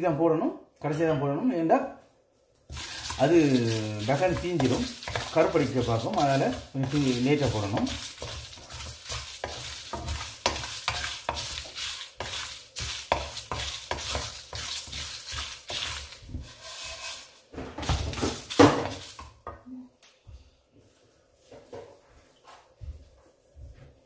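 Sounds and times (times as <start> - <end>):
light sizzle: 2.4 - 20.1
spices scraped in a pan: 2.6 - 19.4.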